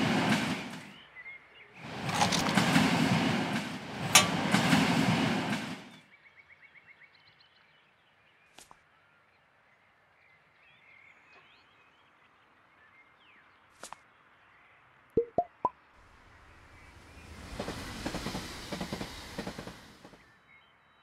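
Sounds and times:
train clattering: 0.0 - 1.0, 1.8 - 6.0, 16.2 - 20.3
faint birdsong: 0.0 - 15.1, 16.0 - 21.0
cartoon pop effects: 15.2 - 15.7.

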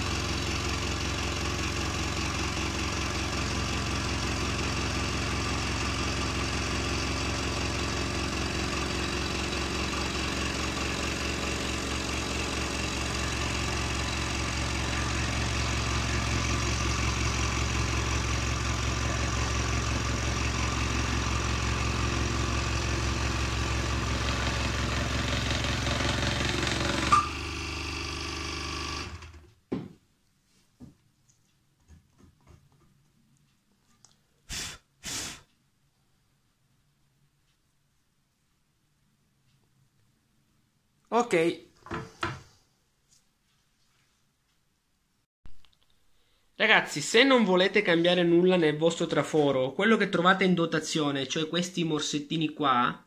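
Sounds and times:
scroll saw buzzing: 3.9 - 29.5.

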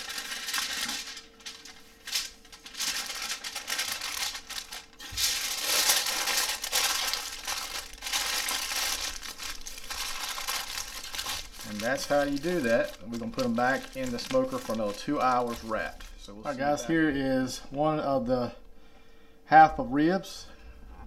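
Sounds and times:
aluminium foil crinkling: 0.0 - 16.7.

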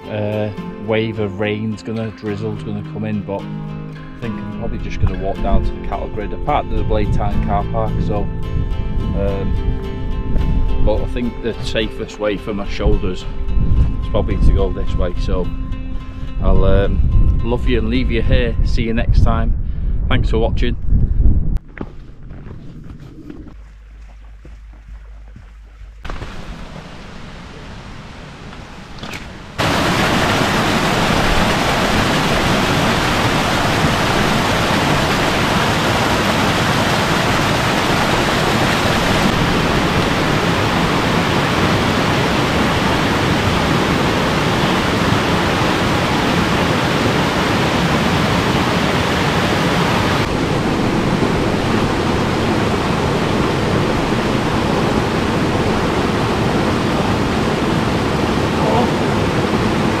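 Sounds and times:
waterfall pouring into pool: 29.6 - 50.2.

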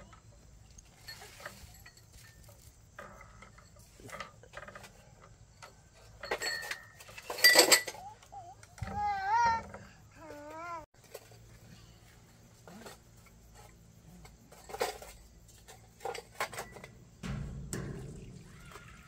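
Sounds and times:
dishes and utensils clinking: 6.0 - 8.2, 14.5 - 19.0
child's voice: 7.9 - 10.9.

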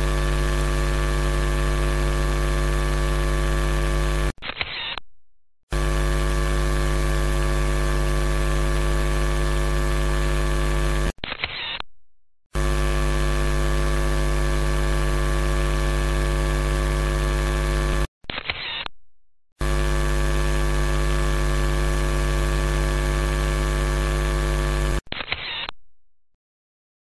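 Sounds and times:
camera shutter sound: 4.4 - 5.0, 11.2 - 11.8, 18.2 - 18.9, 25.1 - 25.7.

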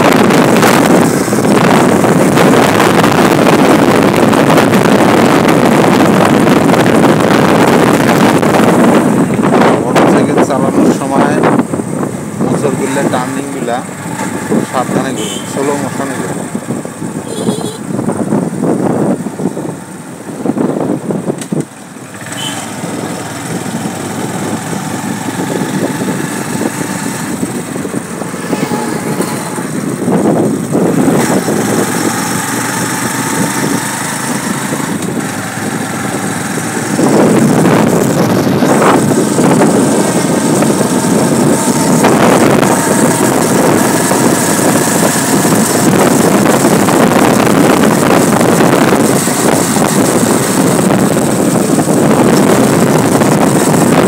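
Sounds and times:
motorcycle engine running: 0.0 - 54.0
road and wind noise: 0.0 - 54.0.

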